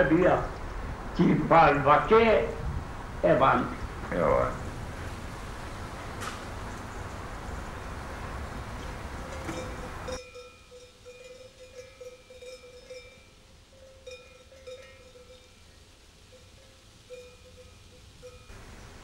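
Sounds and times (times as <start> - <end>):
tape hiss: 0.0 - 19.0
faint bells tinkling: 9.1 - 18.8.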